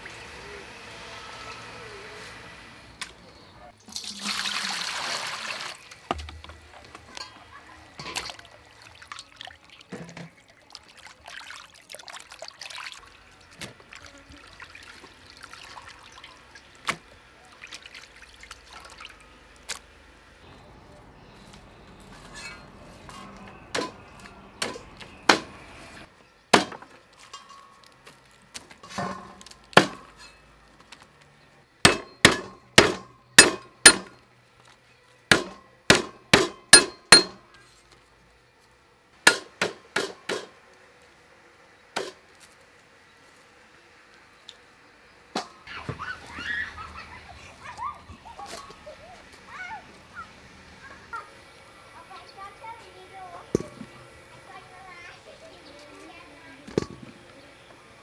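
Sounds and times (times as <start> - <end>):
water trickling into colander: 3.8 - 6.1, 7.1 - 16.9, 17.5 - 19.6
cleaver chopping on wooden block: 31.9 - 34.1, 35.3 - 37.4.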